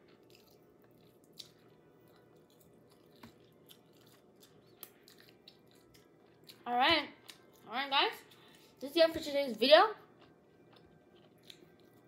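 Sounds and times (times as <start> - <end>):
soft chewing clicks: 0.0 - 8.8, 10.1 - 12.0.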